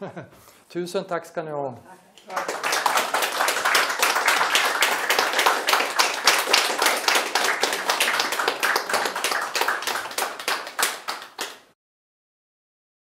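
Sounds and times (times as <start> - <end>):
audience applauding: 2.3 - 11.7.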